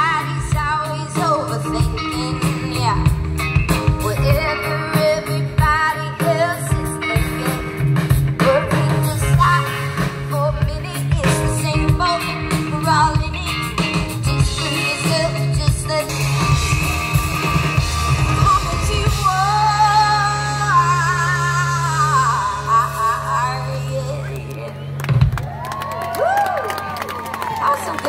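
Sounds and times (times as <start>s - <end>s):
bass: 0.0s - 28.0s
drums: 0.0s - 28.0s
electric guitar: 0.0s - 28.0s
lead vocal: 3.8s - 24.9s.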